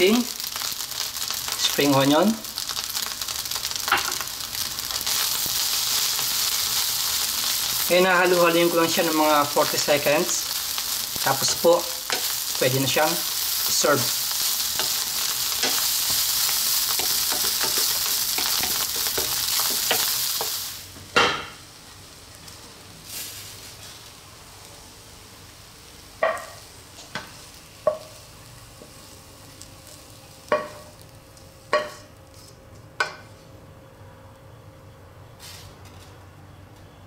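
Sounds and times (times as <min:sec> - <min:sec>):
rice sizzling in a wok: 0:00.0 - 0:33.3, 0:35.4 - 0:35.8
spatula stirring rice: 0:10.6 - 0:20.6.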